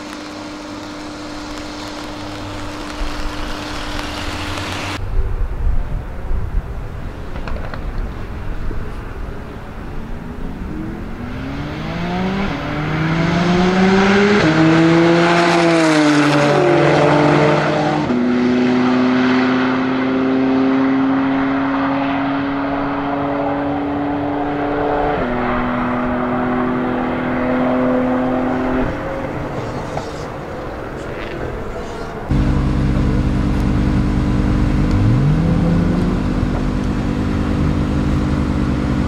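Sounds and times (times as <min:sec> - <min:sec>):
car engines accelerating: 0:08.5 - 0:39.0.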